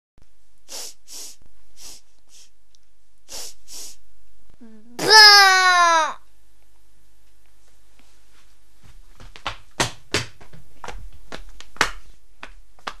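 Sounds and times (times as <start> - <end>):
girl sniffing: 0.6 - 2.6, 3.2 - 4.0
drawn-out voiced cry: 5.0 - 6.2.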